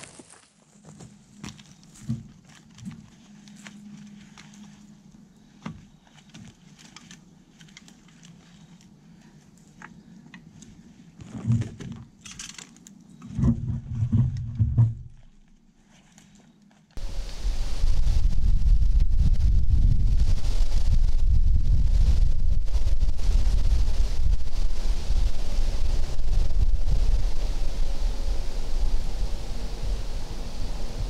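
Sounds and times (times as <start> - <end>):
clothing rustle: 1.8 - 12.8.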